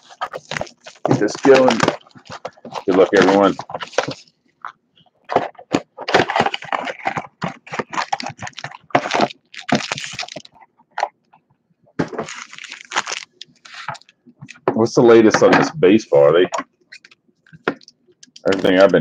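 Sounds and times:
cardboard box tearing: 0.0 - 4.2, 5.3 - 10.5, 12.2 - 14.0
card packs crinkling: 0.0 - 4.4, 5.2 - 11.2, 12.0 - 15.4, 16.1 - 19.0.

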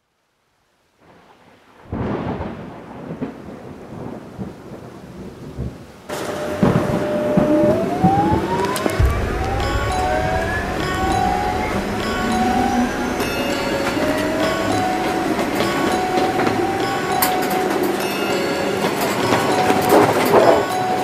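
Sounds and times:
train rolling rumble: 6.3 - 21.0.

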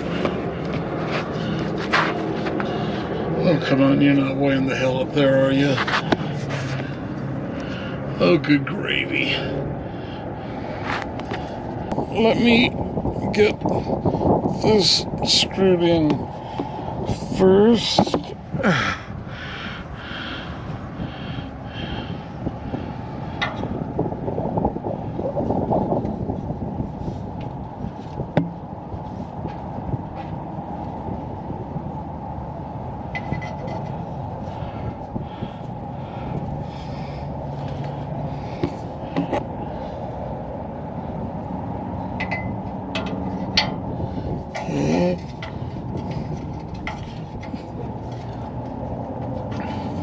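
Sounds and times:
hand scuffing and rubbing: 0.2 - 2.6, 5.7 - 6.8.

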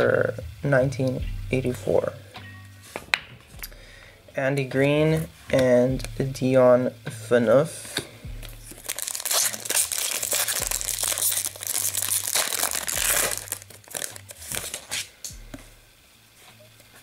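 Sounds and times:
foil wrapper crinkling and tearing: 8.6 - 15.3.

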